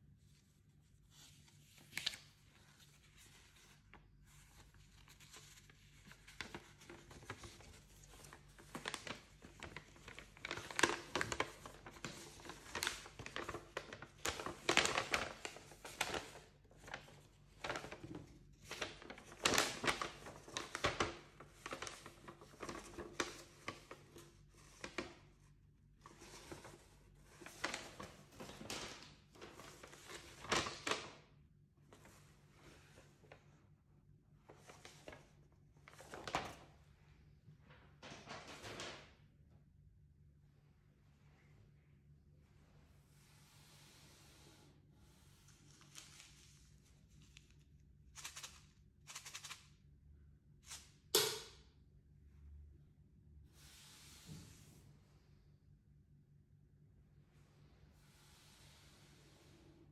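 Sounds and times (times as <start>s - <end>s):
paper rustling and crinkling: 0.1s - 31.2s, 34.4s - 36.8s, 45.1s - 49.7s.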